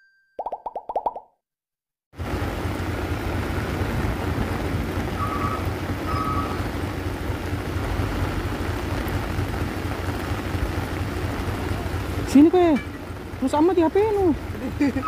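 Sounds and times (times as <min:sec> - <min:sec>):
diesel truck engine running: 0:02.2 - 0:15.0.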